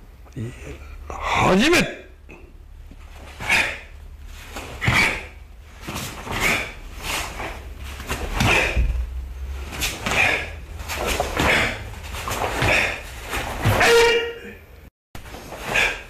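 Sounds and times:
foot thuds on mat: 7.4 - 9.2.

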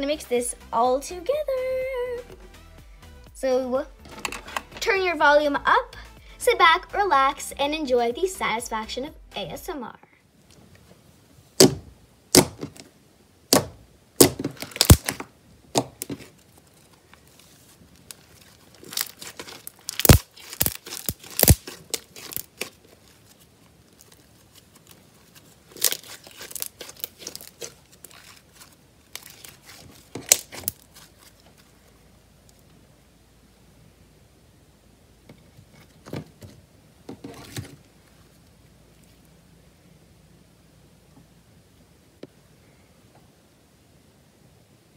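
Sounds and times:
slime crackling and tearing: 13.5 - 31.8.

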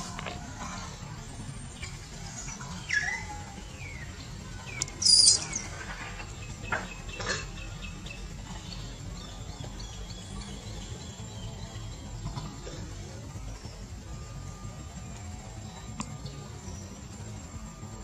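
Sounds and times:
macaques squeaking and chirping: 0.0 - 13.9
steady low rumble: 0.0 - 18.0.

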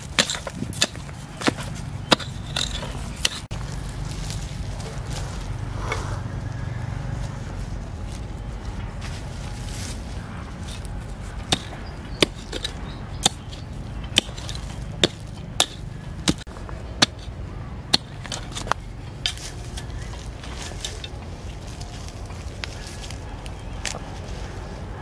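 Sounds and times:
hand pick striking soil: 0.0 - 3.6, 10.6 - 21.3
low rumble: 0.0 - 25.0.

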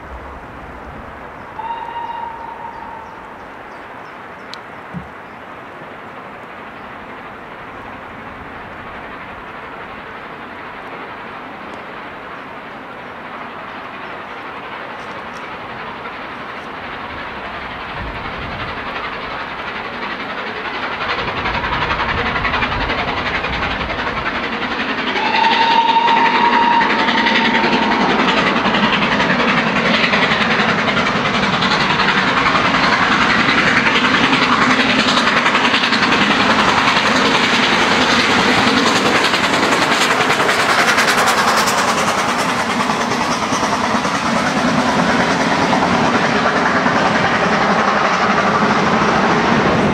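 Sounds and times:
steam locomotive working hard: 0.0 - 49.9
train wheels running over rails: 0.0 - 49.9
short train whistle: 1.6 - 3.4, 25.1 - 28.5.

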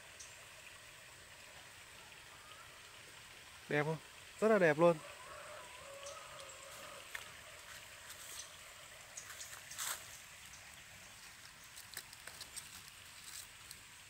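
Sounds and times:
leaves rustling: 5.5 - 14.0
quiet hiss: 5.8 - 14.0.

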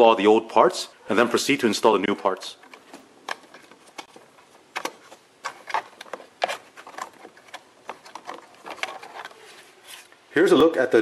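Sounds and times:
plastic clicks and knocks: 2.4 - 9.4.

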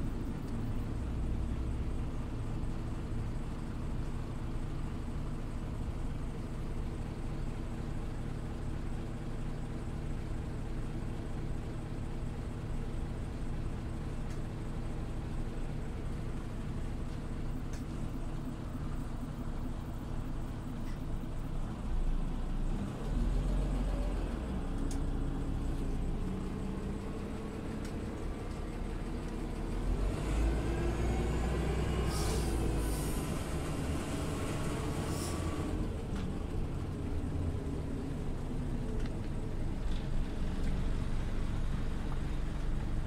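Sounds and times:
bus engine rumble: 0.0 - 43.0
short hisses: 32.1 - 33.3, 35.0 - 35.6.

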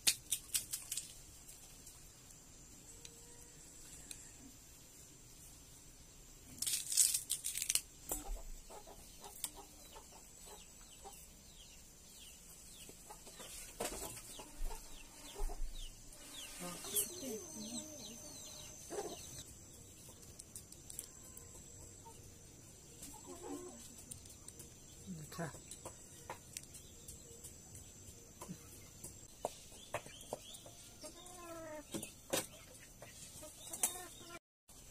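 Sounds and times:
chickens clucking: 8.1 - 11.7, 12.5 - 24.7, 25.5 - 34.4.

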